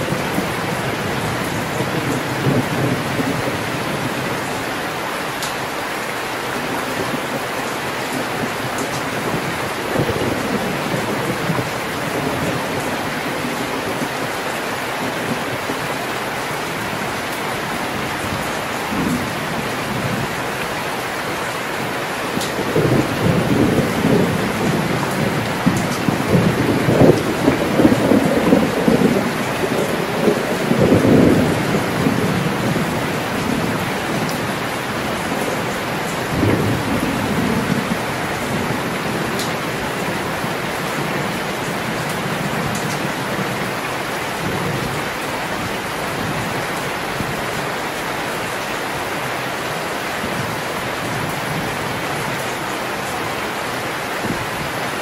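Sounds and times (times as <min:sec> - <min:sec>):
rolling thunder: 0:00.0 - 0:04.6, 0:22.3 - 0:43.8
heavy rain: 0:00.0 - 0:55.0.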